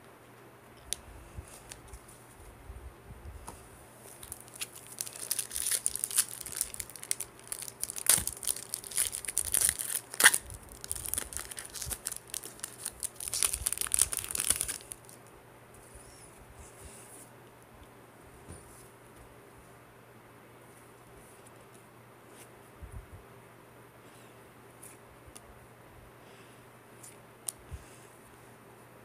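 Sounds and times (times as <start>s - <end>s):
foil wrapper crinkling and tearing: 4.1s - 15.2s.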